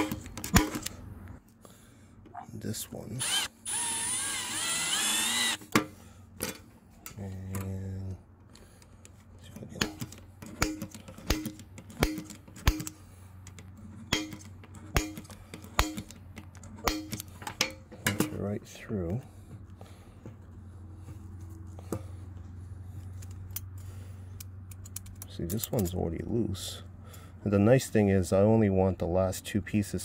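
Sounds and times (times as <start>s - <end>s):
low steady hum: 0.0s - 30.0s
drill whining into metal: 3.2s - 5.7s.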